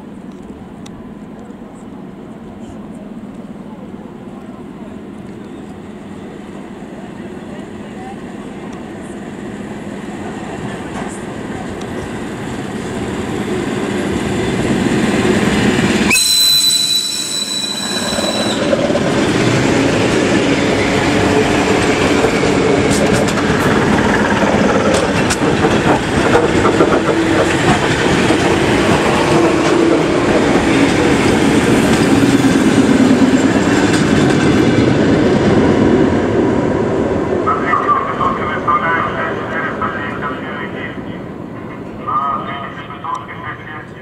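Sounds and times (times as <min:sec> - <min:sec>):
train wheels clattering over rail joints: 0:21.0 - 0:34.9.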